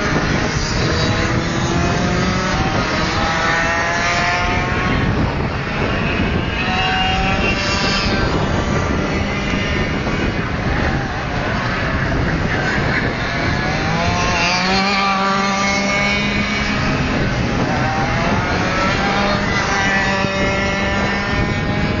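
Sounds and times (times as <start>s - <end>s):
kart engine accelerating: 0.0s - 22.0s.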